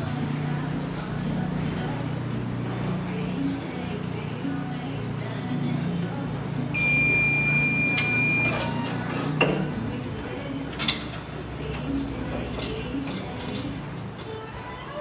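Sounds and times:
timer alarm beeping: 6.8 - 8.7.

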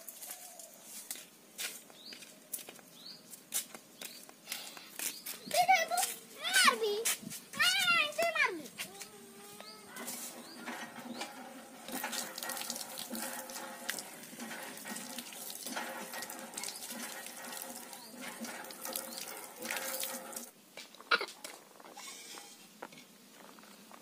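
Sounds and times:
water gushing and splashing: 10.0 - 20.6.

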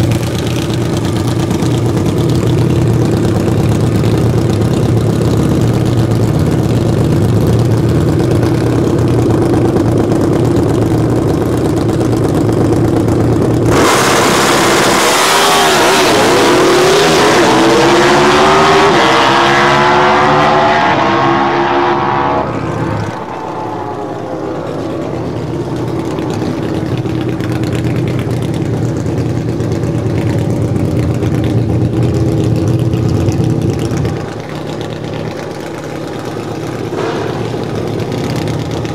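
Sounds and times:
motorcycle engine idling: 0.0 - 13.7, 24.1 - 38.9
motorcycle engine full-throttle roar: 0.0 - 38.9.

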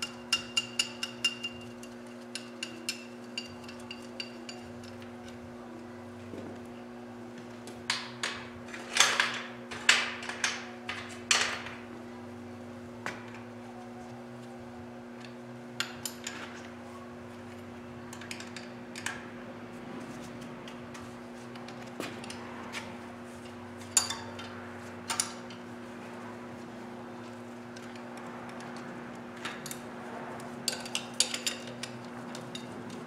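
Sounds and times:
steady low hum: 0.0 - 33.0
metal tools clanking: 23.8 - 25.7, 30.6 - 33.0.

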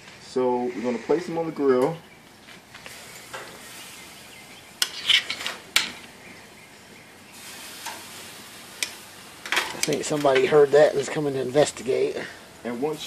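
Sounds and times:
pork chops sizzling on grill: 2.7 - 13.0
metal tongs clicking on grate: 7.8 - 8.1, 8.8 - 11.2.

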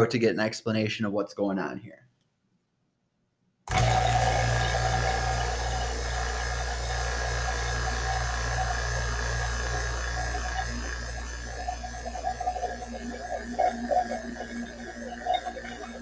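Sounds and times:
vacuum pump humming: 3.7 - 16.0.

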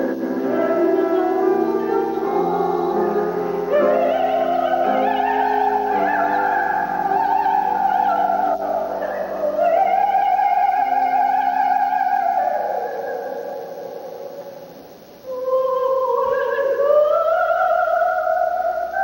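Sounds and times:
soprano singing: 0.0 - 19.0.

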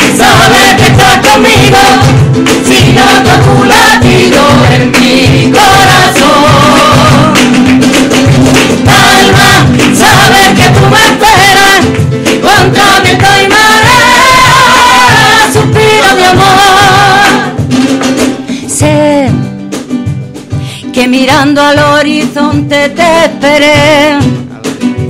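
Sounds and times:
vocal group singing: 0.0 - 17.8.

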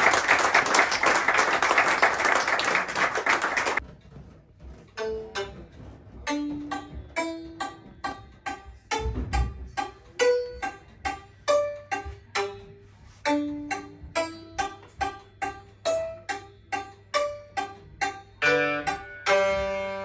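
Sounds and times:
audience clapping: 0.0 - 3.8
hammered dulcimer notes: 4.8 - 20.0.

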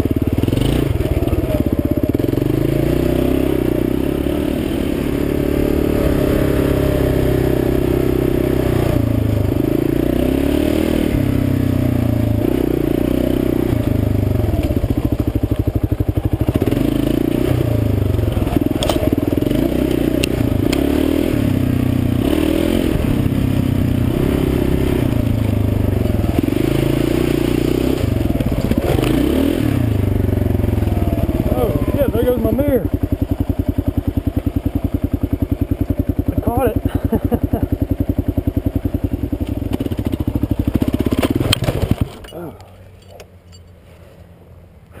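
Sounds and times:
motorcycle engine revving: 0.0 - 44.3
sharp clicks: 19.9 - 20.9.

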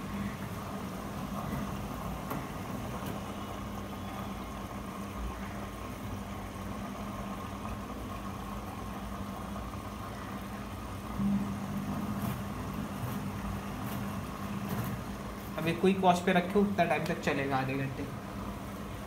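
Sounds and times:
washing machine motor hum: 0.0 - 19.0.

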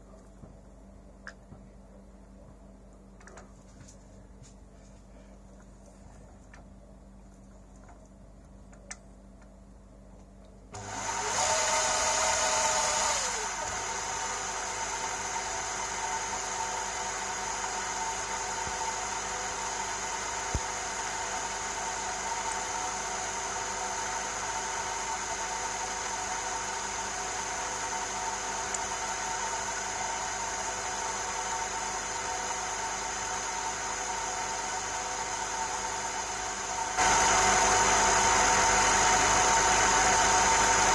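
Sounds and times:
lathe motor whining and humming: 10.8 - 40.9.

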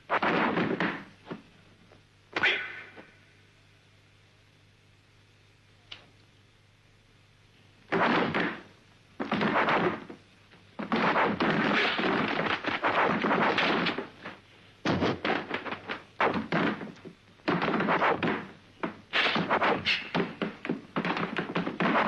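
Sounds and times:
punch and block hits: 7.9 - 8.6, 9.2 - 10.1, 10.8 - 14.1, 14.8 - 22.0.

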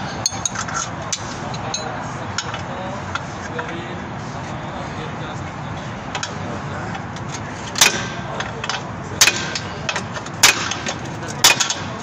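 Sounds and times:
hammer striking steel: 7.7 - 12.0.

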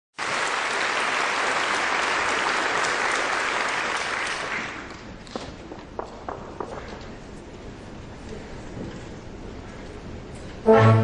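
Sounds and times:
audience applauding: 0.2 - 5.4
dancers' steps on stage floor: 4.0 - 10.6.

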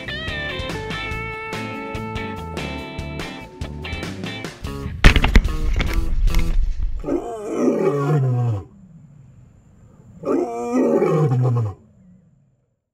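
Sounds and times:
strummed guitar music: 0.0 - 4.7
big cat roaring: 7.0 - 9.2, 10.0 - 12.3.

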